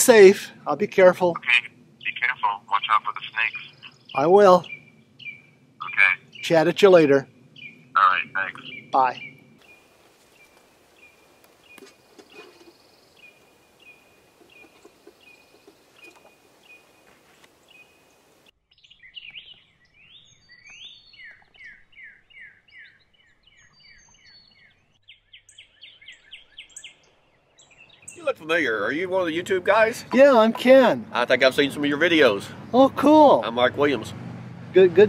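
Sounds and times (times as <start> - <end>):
bird singing falling notes: 3.7 - 31.1.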